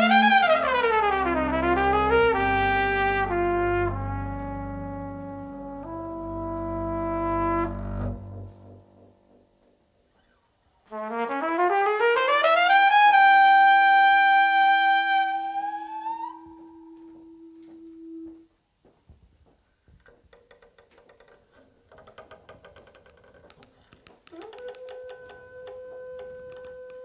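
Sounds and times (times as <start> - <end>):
double bass bowing: 0.0 - 8.9, 21.5 - 27.0
trumpet high note: 0.0 - 9.1, 10.9 - 18.5
faint clicks: 20.0 - 27.0.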